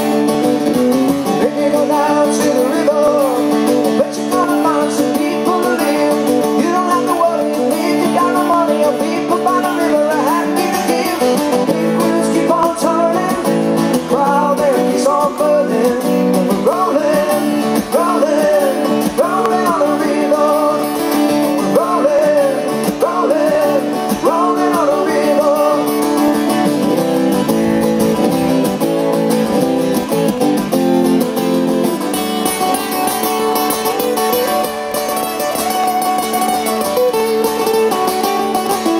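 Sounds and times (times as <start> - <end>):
acoustic guitars playing: 0.0 - 38.9
man singing: 1.2 - 26.6.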